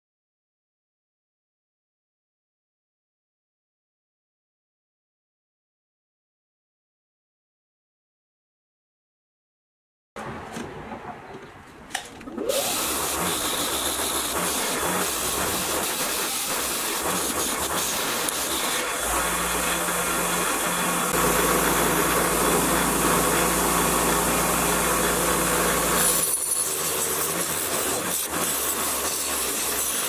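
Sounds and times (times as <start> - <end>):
wire wheel brushing metal: 12.5 - 30.0.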